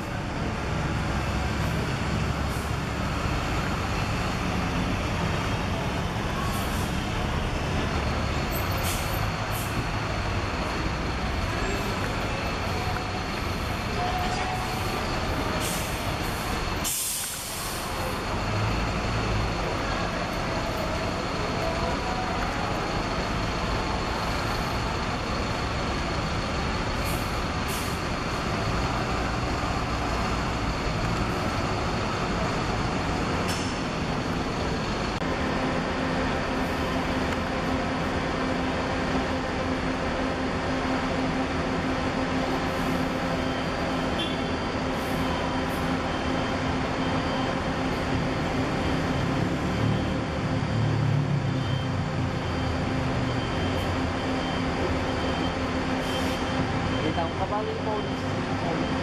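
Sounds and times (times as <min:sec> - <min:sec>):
diesel bus engines running: 0:00.0 - 0:59.0
air brake hisses: 0:08.7 - 0:09.7, 0:15.6 - 0:18.1, 0:56.0 - 0:56.5.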